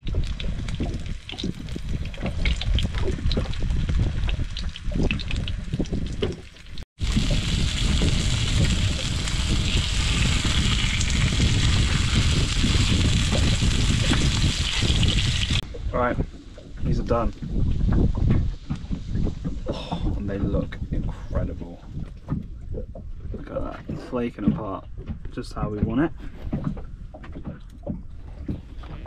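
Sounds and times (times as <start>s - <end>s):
oil spitting and crackling: 0.0s - 15.6s
wind rumble on microphone: 0.0s - 29.0s
fish sizzling in a frying pan: 7.0s - 15.6s.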